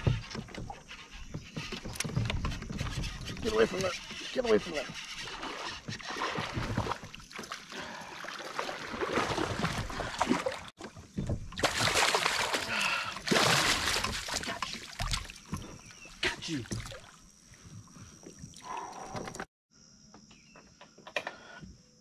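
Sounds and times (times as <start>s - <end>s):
water splashing: 3.2s - 19.3s
fish thrashing at surface: 8.3s - 15.8s.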